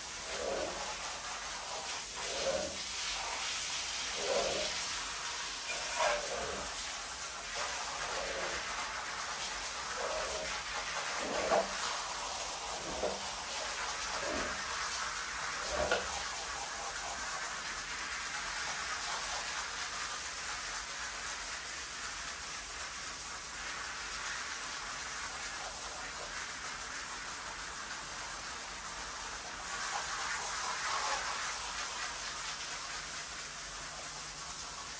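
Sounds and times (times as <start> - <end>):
water spraying onto rug: 0.0 - 34.9.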